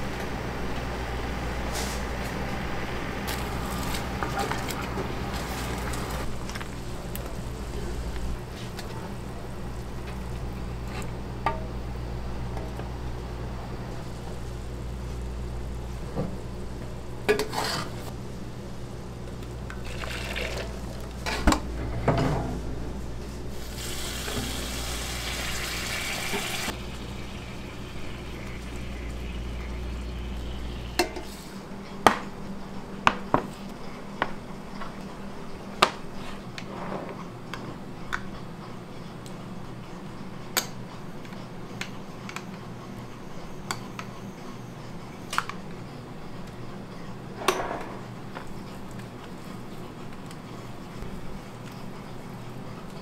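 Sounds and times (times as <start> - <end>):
steady low hum: 0.0 - 53.0
sauce pouring with a hiss: 23.6 - 30.7.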